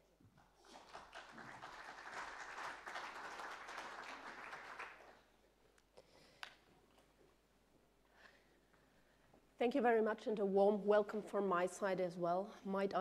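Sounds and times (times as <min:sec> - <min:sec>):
audience applauding: 0:00.6 - 0:05.2.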